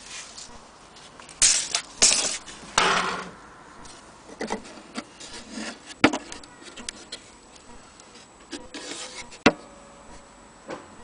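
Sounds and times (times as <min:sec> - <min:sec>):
wood scraping rub: 0:03.9 - 0:07.4, 0:08.0 - 0:09.5.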